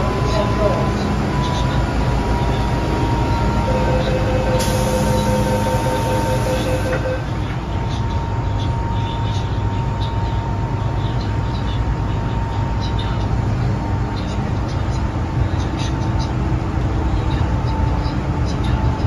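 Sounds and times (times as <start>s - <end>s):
door-closing warning tone: 0.0s - 10.0s
train hum: 0.0s - 19.0s
train doors sliding shut: 4.2s - 7.1s.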